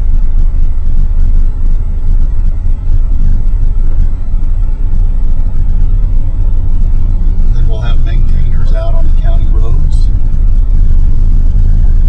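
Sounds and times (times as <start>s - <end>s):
vehicle rumbling on dirt road: 0.0s - 12.0s.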